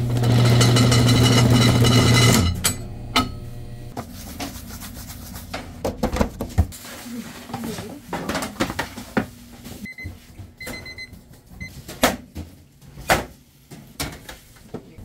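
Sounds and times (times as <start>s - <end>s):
dough divider machine humming: 0.0s - 6.5s
hands rubbing dough on bench: 4.0s - 5.8s.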